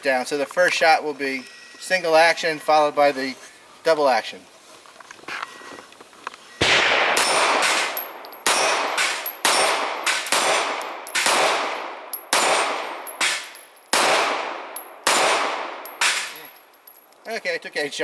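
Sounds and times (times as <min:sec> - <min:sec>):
pistol shots echoing: 0:06.6 - 0:16.5.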